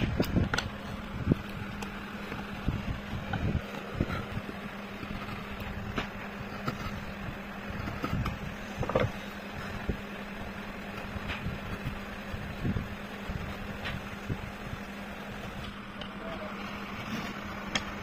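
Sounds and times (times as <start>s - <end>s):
steady low hum: 0.0s - 18.0s
chisel scraping wood: 3.2s - 9.8s.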